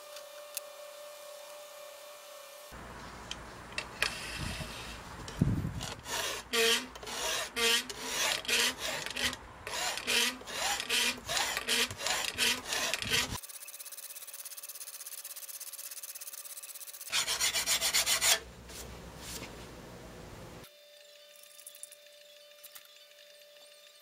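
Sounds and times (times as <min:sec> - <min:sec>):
file rasping on steel: 0:05.8 - 0:13.4, 0:17.1 - 0:18.5.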